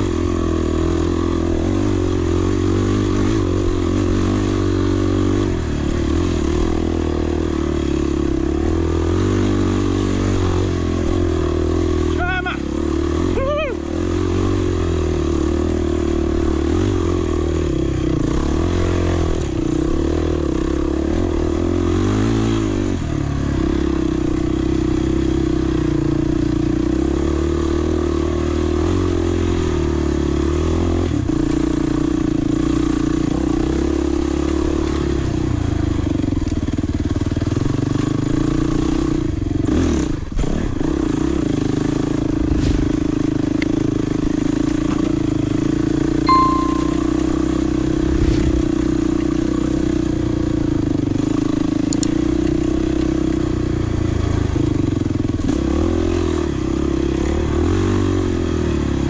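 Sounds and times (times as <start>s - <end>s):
motorcycle engine revving: 40.6s - 45.9s.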